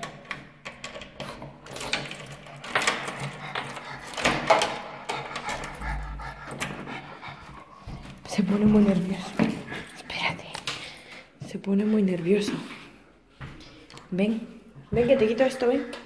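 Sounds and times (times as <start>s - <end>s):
key working in door lock: 0.0s - 5.7s.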